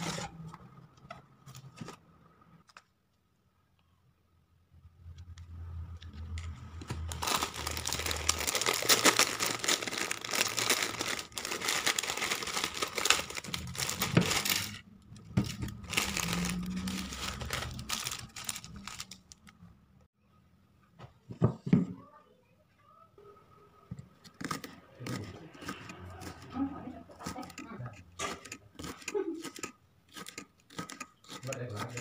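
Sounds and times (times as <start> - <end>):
plastic wrapper crinkling: 6.9 - 19.6.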